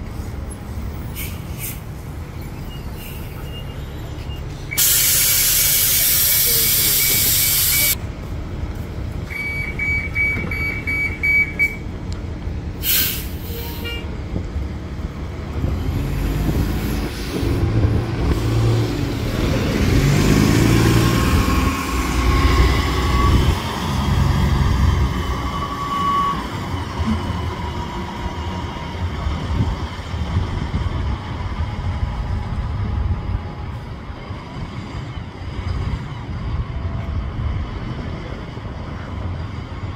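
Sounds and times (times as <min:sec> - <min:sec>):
bus engine passing: 0:00.0 - 0:39.9
air hiss: 0:04.8 - 0:08.0, 0:12.8 - 0:13.5
quick beeps: 0:09.3 - 0:11.8.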